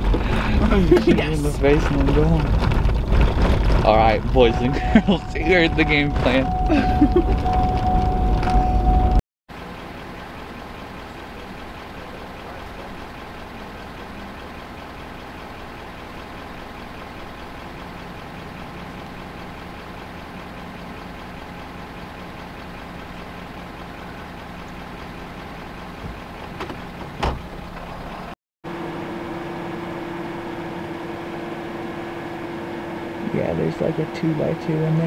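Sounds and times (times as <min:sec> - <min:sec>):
truck engine idling: 0:00.0 - 0:35.0
steady tonal hum: 0:03.9 - 0:14.4, 0:28.8 - 0:35.0.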